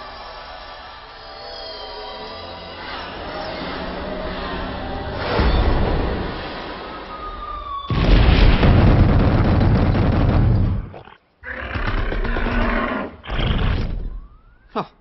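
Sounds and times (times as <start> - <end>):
deep creature roar: 11.4 - 13.9.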